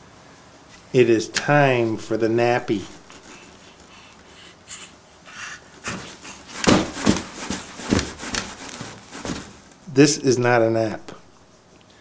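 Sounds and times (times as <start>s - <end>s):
baby breathy huffs: 3.2s - 6.7s.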